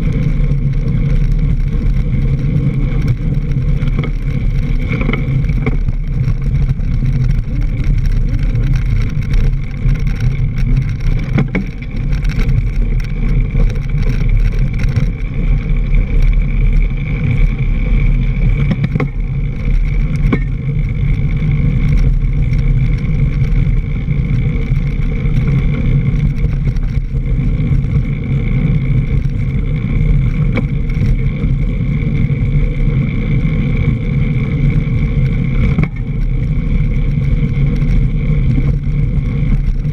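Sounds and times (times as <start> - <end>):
bike tyres on dirt and leaves: 0.0 - 39.9
wind rumble: 0.0 - 39.9.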